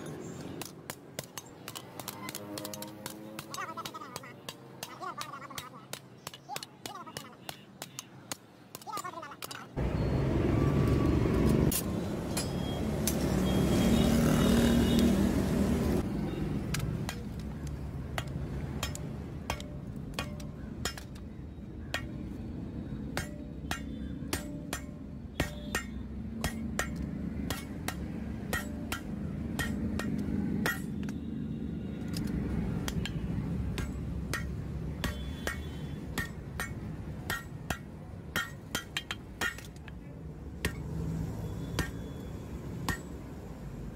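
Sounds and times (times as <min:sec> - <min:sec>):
hammer striking hot steel on anvil: 0:18.1 - 0:22.4, 0:23.1 - 0:31.3, 0:32.8 - 0:42.2, 0:42.8 - 0:43.2.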